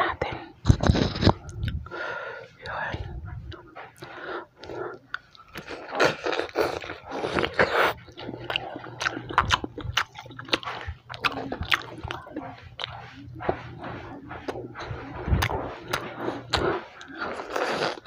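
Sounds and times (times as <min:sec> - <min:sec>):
chewing mouth clicks: 0:03.5 - 0:18.0
crunching fried crust: 0:05.1 - 0:13.1.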